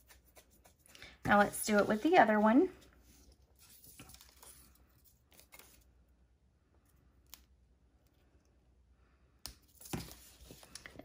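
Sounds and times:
faint paper rustling: 0:00.0 - 0:05.9, 0:09.6 - 0:11.0.

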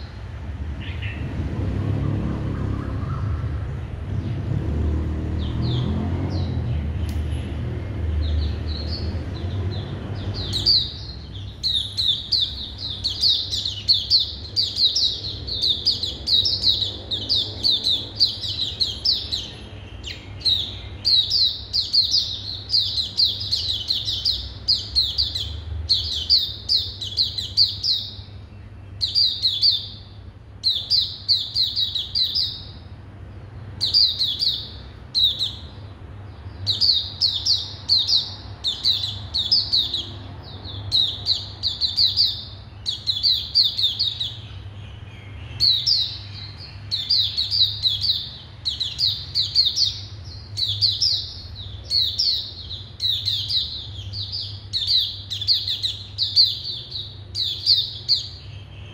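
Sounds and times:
bird high twittering song: 0:00.0 - 0:58.9.

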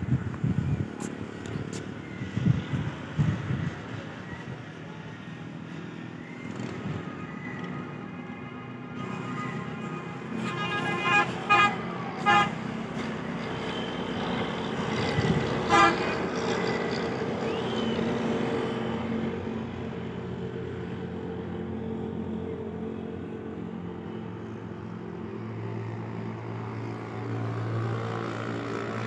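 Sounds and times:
passing road traffic hum: 0:00.0 - 0:29.0
vehicle horn honking: 0:08.9 - 0:12.7, 0:15.6 - 0:16.5.

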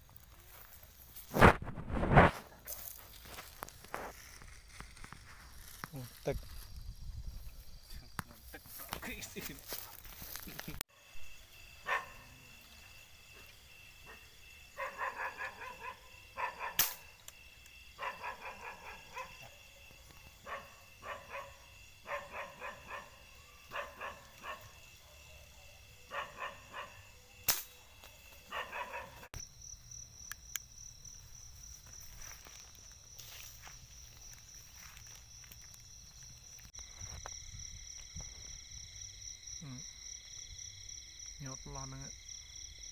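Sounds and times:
air gun shots: 0:16.8 - 0:17.1, 0:27.4 - 0:27.8.

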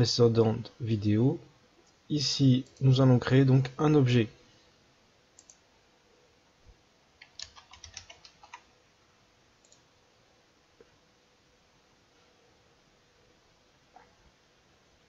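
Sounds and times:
keyboard typing: 0:07.2 - 0:08.7.

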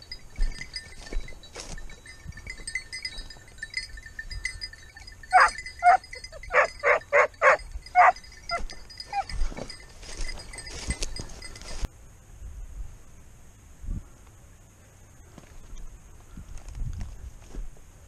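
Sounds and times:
dog barking: 0:05.3 - 0:08.2
dog yelping: 0:05.3 - 0:09.4.

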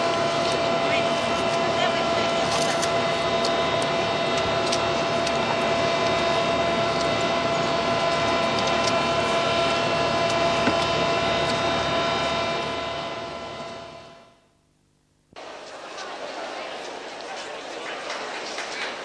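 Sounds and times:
ship engine drone: 0:00.0 - 0:14.5.

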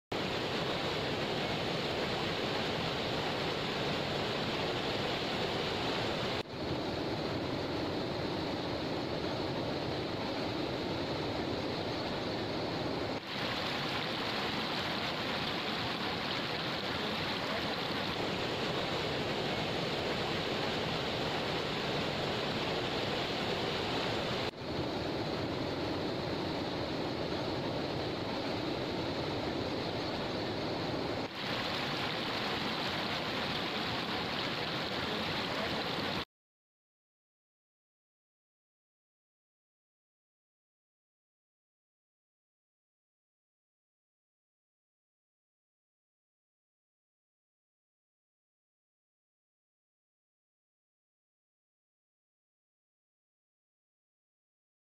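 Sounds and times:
floodwater rushing over causeway: 0:00.1 - 0:36.2.

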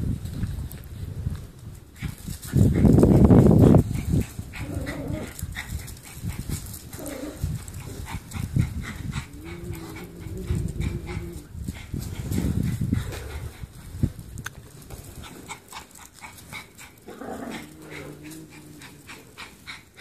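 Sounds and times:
small dogs vocalising: 0:02.6 - 0:13.8, 0:15.2 - 0:20.0.

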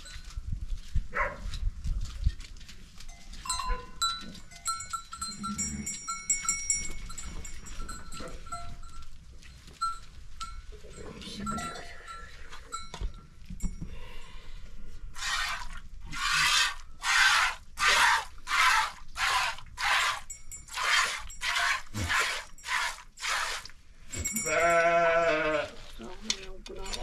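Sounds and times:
goat bleating: 0:24.4 - 0:25.8.

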